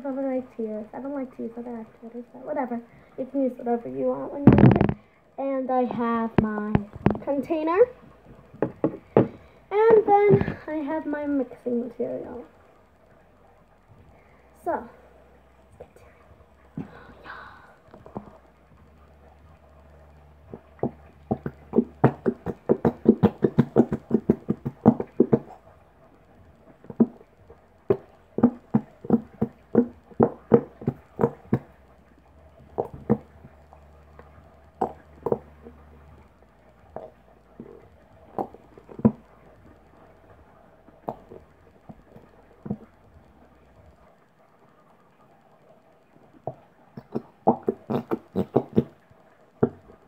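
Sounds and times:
plastic bottle clicks and knocks: 6.8s - 7.3s, 8.6s - 9.4s.

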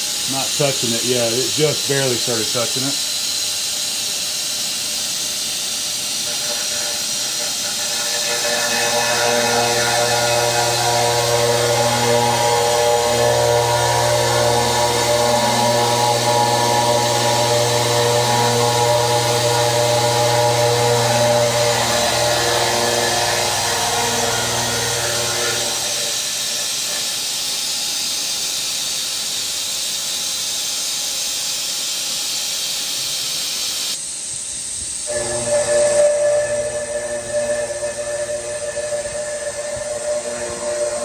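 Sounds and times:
milling cutter hissing: 0.0s - 34.1s, 35.0s - 41.0s
spindle and cutter tones: 4.6s - 27.2s, 35.1s - 41.0s.

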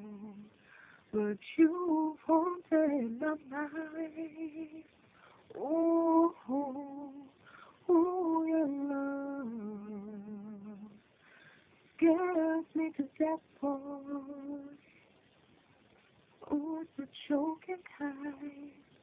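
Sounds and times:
woman singing solo with vibrato: 5.5s - 11.0s, 12.0s - 14.8s.

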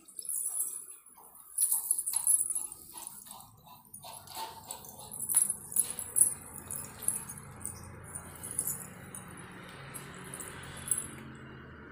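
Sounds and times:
light metallic jingling: 0.0s - 11.7s.

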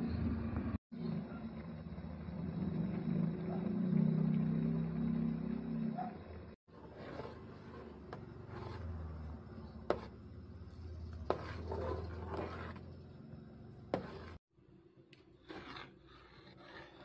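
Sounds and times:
spoon stirring porridge in a pot: 6.7s - 14.4s, 15.1s - 17.0s.

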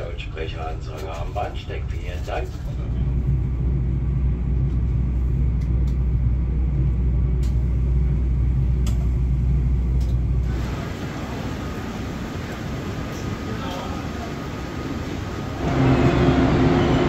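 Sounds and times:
train carriage rumble: 0.0s - 17.0s
station platform hiss: 10.3s - 17.0s.

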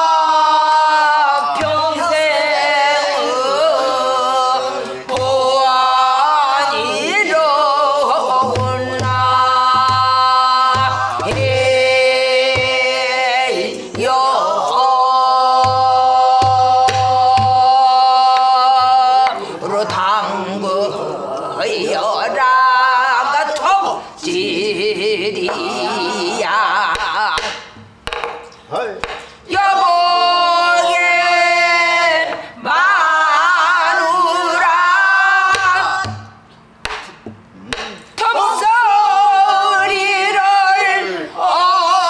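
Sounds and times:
woman singing: 0.0s - 27.6s, 29.5s - 36.4s, 38.2s - 42.0s
barrel drum beats: 8.1s - 14.4s, 15.5s - 17.9s, 27.0s - 30.4s, 35.6s - 38.1s
drumstick taps: 27.4s - 29.3s, 35.6s - 38.0s.

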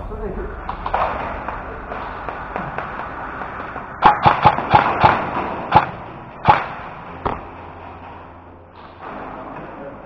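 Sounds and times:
airsoft gun shots: 2.2s - 7.4s.

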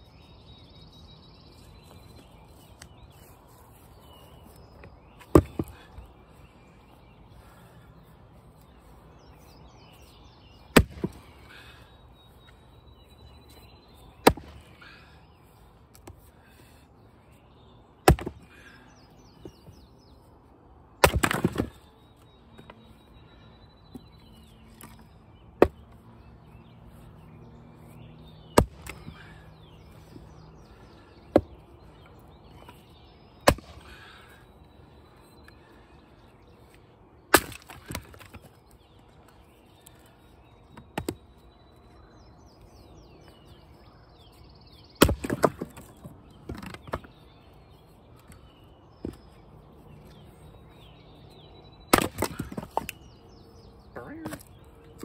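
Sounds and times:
birds chirping faintly: 0.0s - 55.0s
axe chopping wood: 5.2s - 5.9s, 10.7s - 11.3s, 14.2s - 14.7s, 18.0s - 18.6s, 21.0s - 21.8s, 25.6s - 25.8s, 28.5s - 29.2s, 31.3s - 31.6s, 33.4s - 34.0s, 37.3s - 38.5s, 40.8s - 41.2s, 45.0s - 47.1s, 51.9s - 53.0s
wood crackling as it splits: 21.0s - 21.8s, 37.3s - 38.5s, 45.0s - 47.0s, 51.9s - 53.0s.

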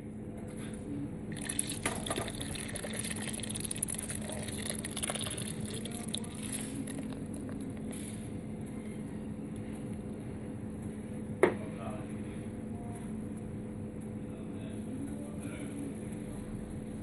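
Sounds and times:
liquid splashes: 1.3s - 7.4s
beer pouring and fizzing: 1.3s - 7.6s.

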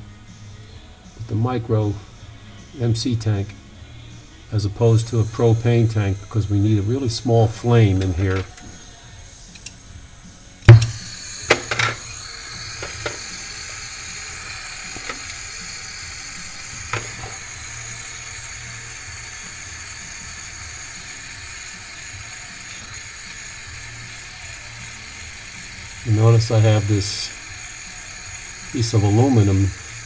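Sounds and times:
torch flame hissing: 0.0s - 30.0s
torch lighting pop: 10.6s - 20.7s.

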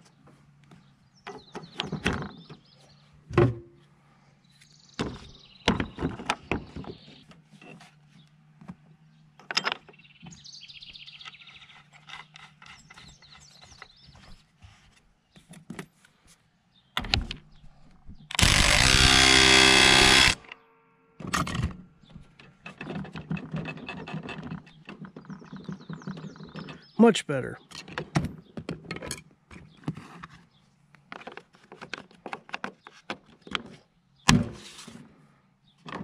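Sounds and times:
cordless power tool running: 18.3s - 20.5s.

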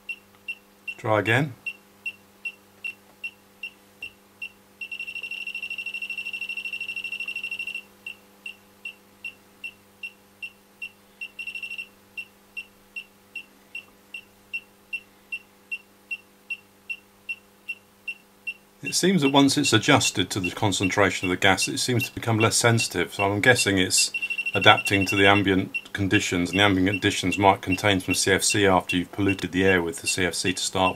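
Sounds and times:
leak detector beeping: 1.6s - 30.9s.

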